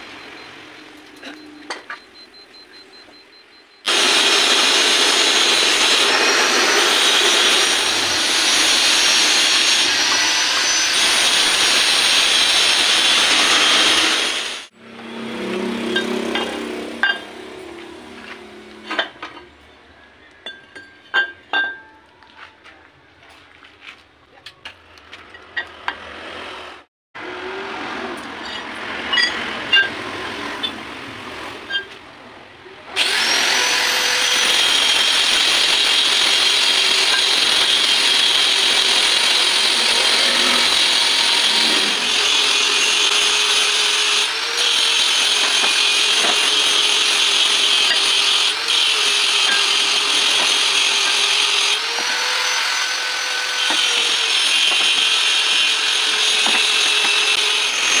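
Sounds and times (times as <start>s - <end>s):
power tool running: 3.8s - 18.8s, 33.0s - 58.0s.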